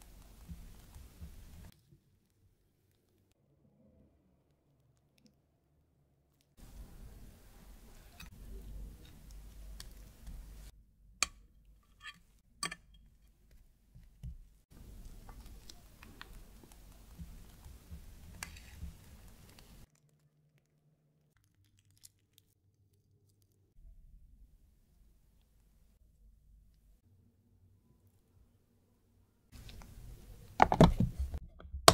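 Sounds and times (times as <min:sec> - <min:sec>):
spatula scraping cream: 0:14.8 - 0:19.9
cream squishing from piping bag: 0:14.8 - 0:23.7.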